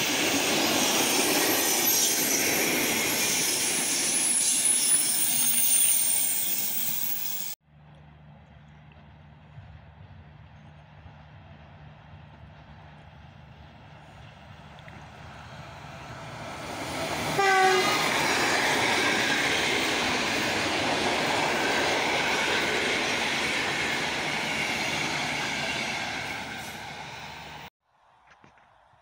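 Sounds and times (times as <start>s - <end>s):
train passing at speed: 0.0s - 7.6s, 9.6s - 27.7s
train wheels rushing on rails: 0.0s - 7.6s, 10.0s - 27.7s
train horn: 17.4s - 18.1s.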